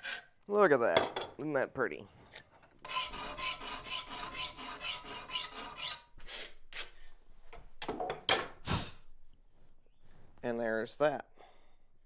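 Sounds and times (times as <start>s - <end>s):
file strokes on steel: 2.8s - 7.2s.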